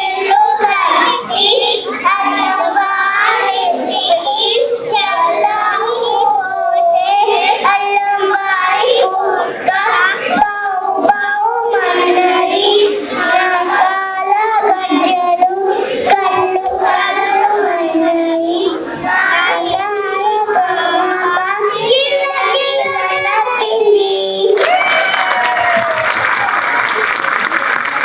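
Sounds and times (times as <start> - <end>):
children singing into microphone: 0.0 - 24.6
applause: 24.6 - 28.0.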